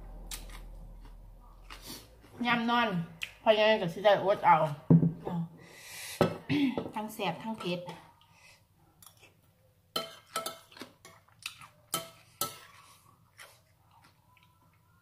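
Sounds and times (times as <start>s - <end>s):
spoon clinking on ceramic plate: 10.0s - 10.8s.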